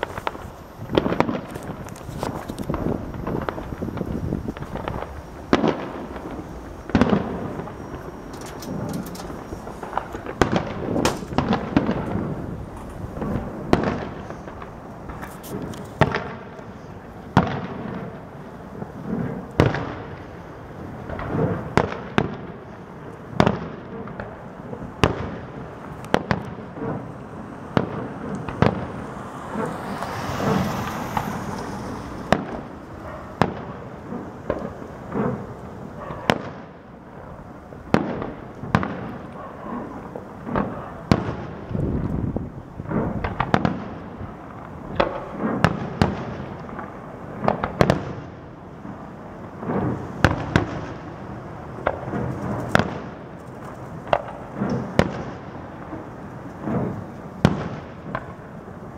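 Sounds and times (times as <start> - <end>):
firework shells bursting: 0.0 - 20.4
hissing crackle: 0.0 - 58.9.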